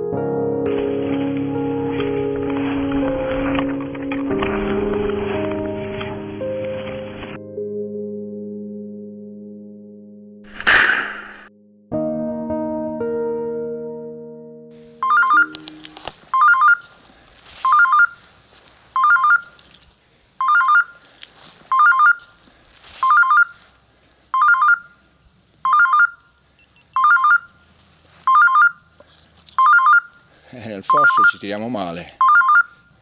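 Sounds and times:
background music: 0.0 - 16.2
electronic beeper chirps: 15.0 - 16.8.

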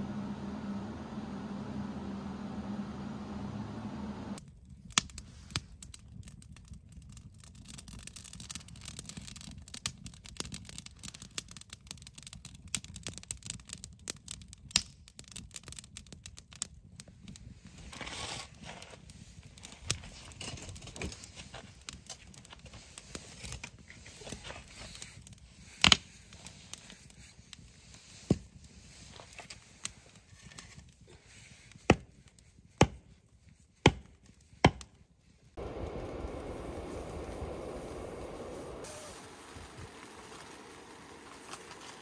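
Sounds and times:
firewood crackling and popping: 4.4 - 42.0.

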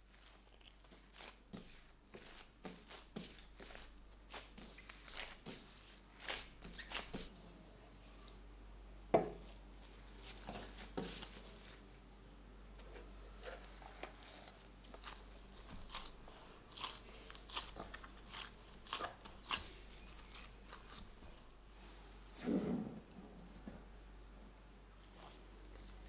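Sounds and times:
hands kneading dough: 0.0 - 7.4, 9.4 - 11.9, 12.9 - 22.4.

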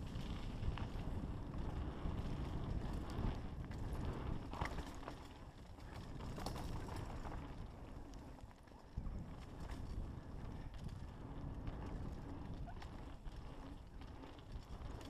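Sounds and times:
wind buffeting microphone: 0.0 - 5.0, 9.0 - 15.0
bike rattling over bumps: 0.0 - 15.0
bike tyres on dirt: 0.0 - 15.0.

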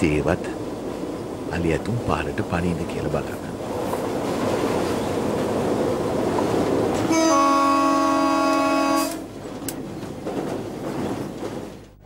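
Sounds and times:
locomotive horn blast: 7.0 - 9.3.

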